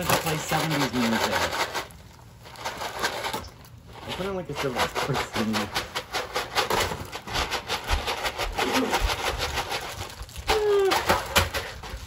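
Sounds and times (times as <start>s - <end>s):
gift wrap crinkling: 0.0s - 12.0s.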